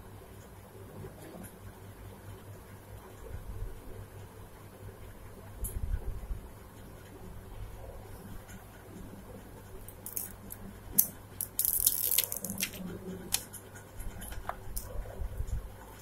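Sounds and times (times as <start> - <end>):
plastic film crinkling: 11.4 - 13.5.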